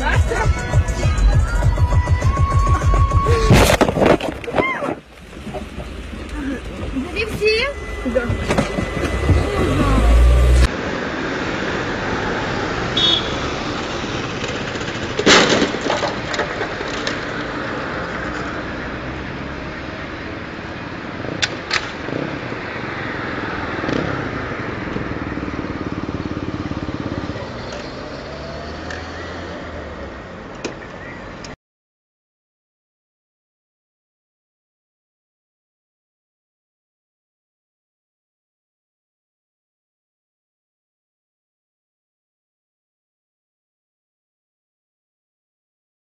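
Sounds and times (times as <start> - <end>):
street traffic: 0.0 - 31.6
loud vehicle crash: 3.4 - 4.9, 13.5 - 17.6.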